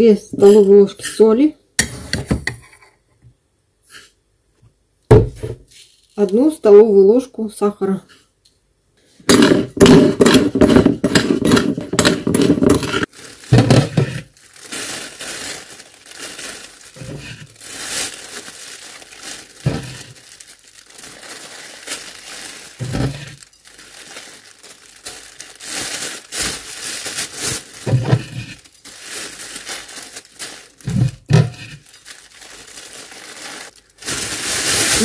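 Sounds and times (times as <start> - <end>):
plastic bag crinkling: 5.7 - 6.4, 9.4 - 35.0.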